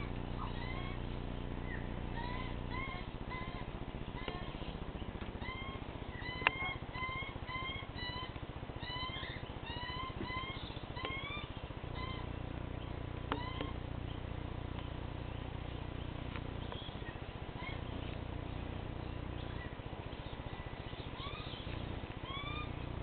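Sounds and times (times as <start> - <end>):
young bird begging calls: 0.0 - 14.3, 15.3 - 23.0.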